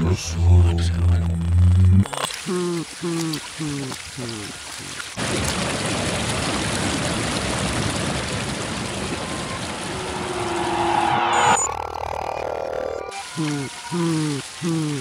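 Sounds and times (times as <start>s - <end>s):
reversed dense rushing noise: 8.8s - 13.2s.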